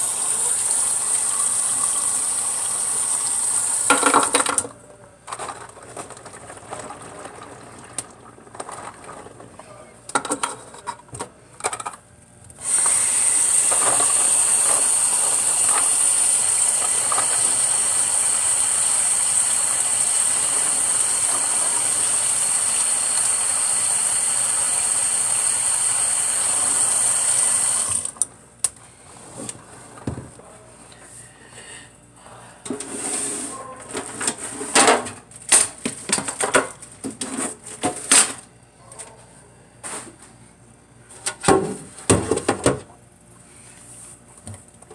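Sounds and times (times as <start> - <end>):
tap water running into sink: 0.0 - 4.5, 12.6 - 28.2
plastic items clicking and clattering: 3.9 - 12.0.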